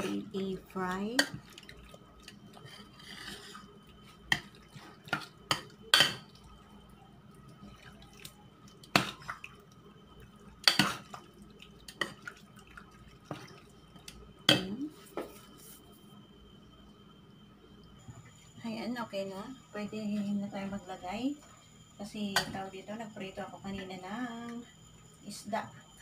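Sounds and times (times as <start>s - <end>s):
wet batter stirring: 0.0s - 6.6s.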